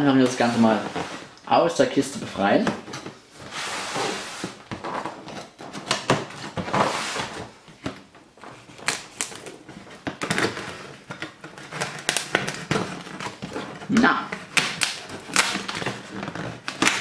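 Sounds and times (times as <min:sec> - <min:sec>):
knife cutting cardboard box: 0:08.8 - 0:17.0.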